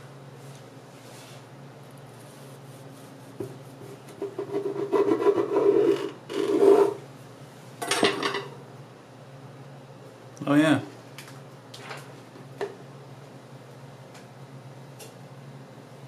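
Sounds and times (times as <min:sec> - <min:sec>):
bread knife sawing through loaf: 0:04.3 - 0:07.0.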